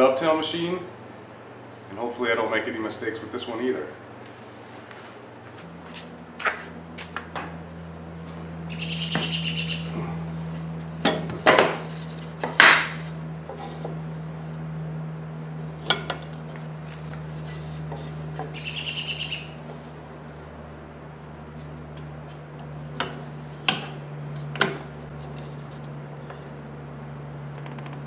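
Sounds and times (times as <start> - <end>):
steady low hum: 0.0 - 28.0
short chirping bursts: 8.7 - 9.9, 18.6 - 19.6.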